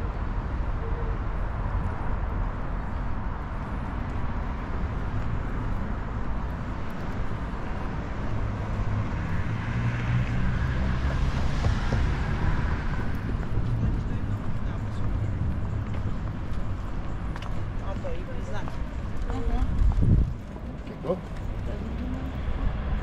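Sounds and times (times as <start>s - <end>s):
city road traffic: 0.0s - 23.0s
vehicle passing close by: 4.4s - 15.4s
wind buffeting microphone: 10.2s - 23.0s.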